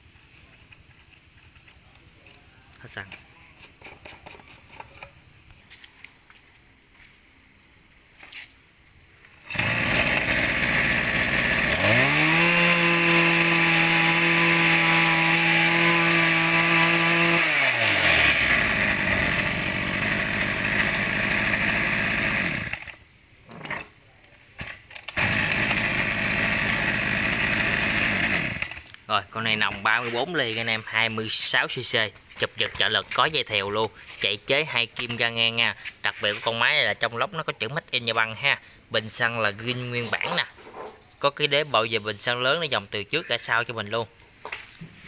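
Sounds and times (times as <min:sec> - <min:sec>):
brush-cutter engine revving: 0:09.4 - 0:23.9, 0:24.6 - 0:29.0.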